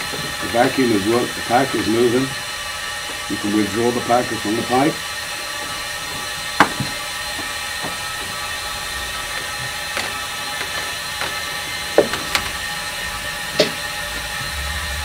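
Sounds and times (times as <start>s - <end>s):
vacuum hissing and humming: 0.0s - 15.0s
sharp knocks in pipe: 6.6s - 7.0s, 13.6s - 13.8s.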